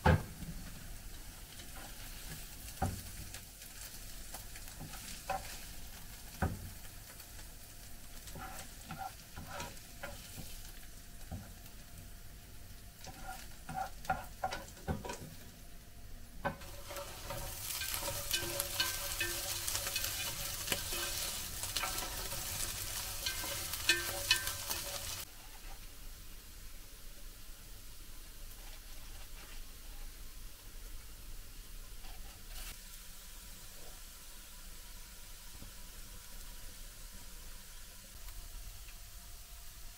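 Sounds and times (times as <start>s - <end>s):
food sizzling in hot oil: 0.0s - 25.3s, 31.2s - 39.9s
utensil scraping a pan: 4.8s - 5.8s, 8.3s - 10.6s, 13.0s - 15.4s, 16.5s - 25.8s, 32.0s - 32.8s.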